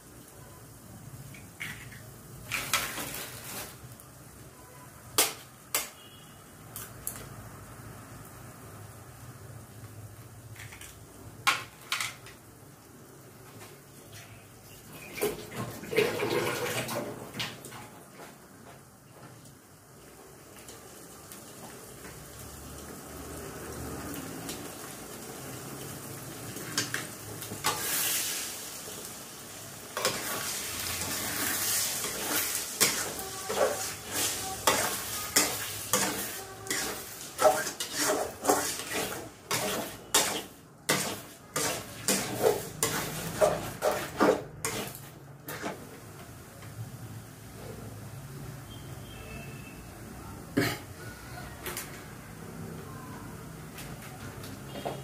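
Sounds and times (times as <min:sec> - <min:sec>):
eggs sizzling in oil: 0:00.0 - 0:50.1
spatula scraping a metal pan: 0:30.0 - 0:45.8.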